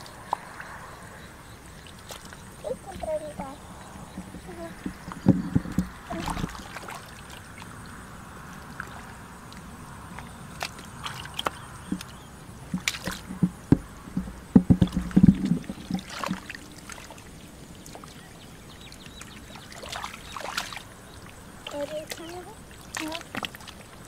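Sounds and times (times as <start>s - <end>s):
hands splashing in muddy water: 10.2s - 13.5s, 14.8s - 17.2s, 19.1s - 21.0s.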